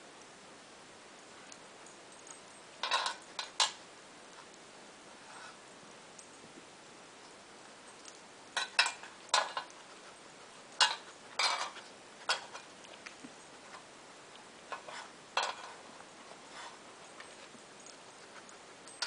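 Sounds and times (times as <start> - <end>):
metal muffin tin clanking: 2.8 - 3.8, 8.6 - 9.8, 10.8 - 12.7, 14.7 - 15.8.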